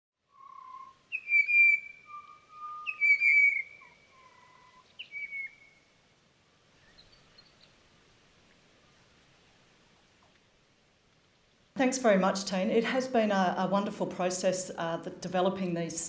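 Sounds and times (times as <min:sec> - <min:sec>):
bird whistling song: 0:00.3 - 0:05.8.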